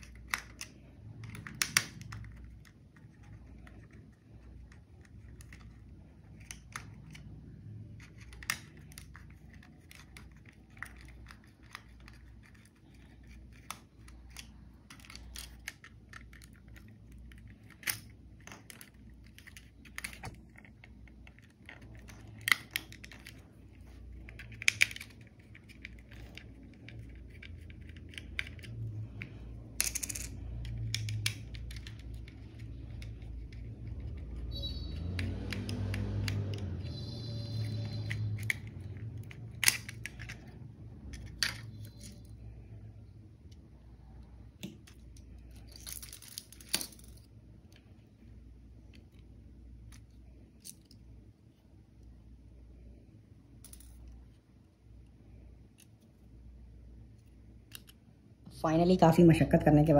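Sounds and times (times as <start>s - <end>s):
plastic clicks and rattles: 0.0s - 34.4s, 37.9s - 42.3s
low steady hum: 0.0s - 59.9s.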